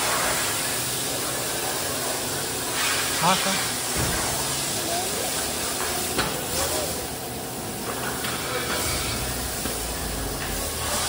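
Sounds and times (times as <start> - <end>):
hose water jet hissing: 0.0 - 11.0.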